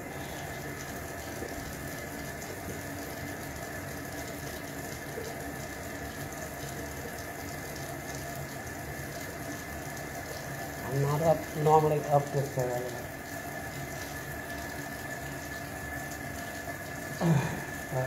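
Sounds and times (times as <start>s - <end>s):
faucet water running into sink: 0.0s - 18.0s.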